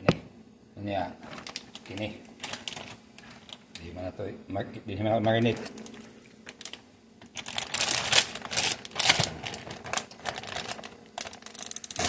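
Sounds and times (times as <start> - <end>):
plastic bag crinkling: 1.2 - 3.7, 5.5 - 12.0.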